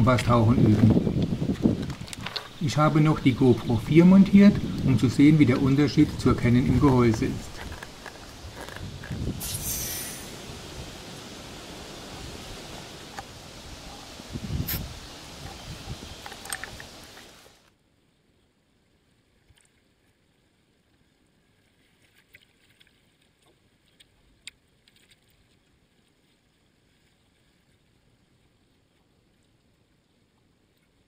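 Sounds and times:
steady hiss: 0.0 - 17.7.

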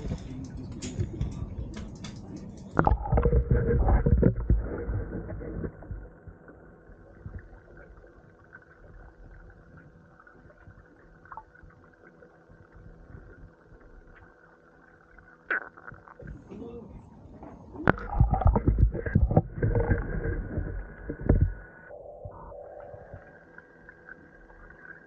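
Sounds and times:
low rumble: 0.0 - 8.2, 16.2 - 23.5
faint machinery hum: 0.0 - 15.5.

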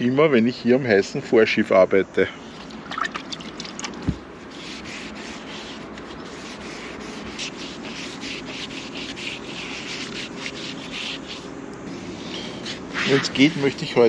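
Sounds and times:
sponge scrubbing boat deck: 3.5 - 14.0.

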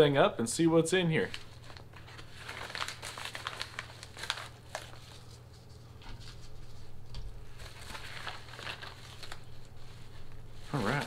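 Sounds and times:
paper mailer tearing and crinkling: 1.2 - 5.3, 7.5 - 9.6, 10.7 - 11.0
paper rustling: 1.2 - 11.0.

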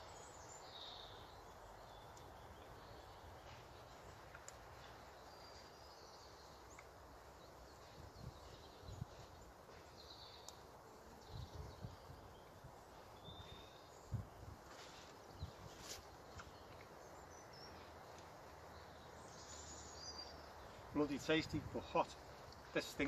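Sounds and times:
faint bird chirps: 11.2 - 23.0.

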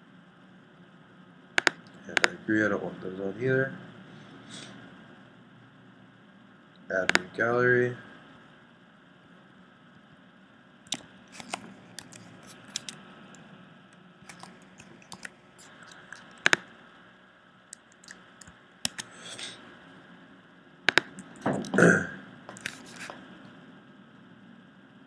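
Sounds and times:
key presses: 1.6 - 2.3, 14.2 - 16.6, 17.9 - 19.1, 20.9 - 21.3
computer mouse clicks: 1.6 - 2.4, 10.9 - 13.0, 14.2 - 16.6, 17.7 - 19.1, 20.9 - 21.4.

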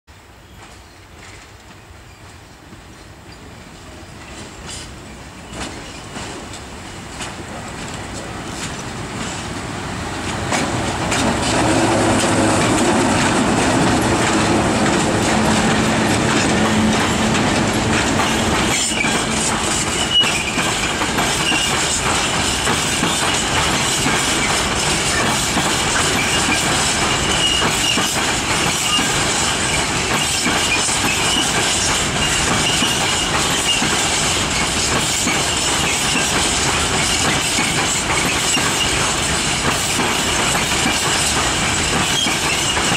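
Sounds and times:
train wheels clattering over rail joints: 0.6 - 42.9
electric locomotives humming: 7.5 - 30.2
high wheel squeal: 18.3 - 23.5, 24.3 - 34.0, 42.0 - 42.9.

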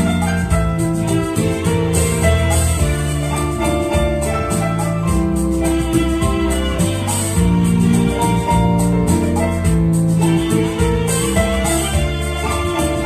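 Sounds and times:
bass line: 0.0 - 13.0
electronic keyboard organ melody: 0.0 - 13.0
light drums: 0.0 - 13.0.

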